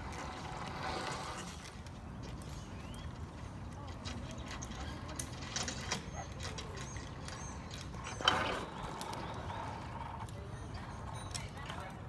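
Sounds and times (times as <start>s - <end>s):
metal climbing gear clinking: 3.3s - 8.9s, 10.2s - 12.0s.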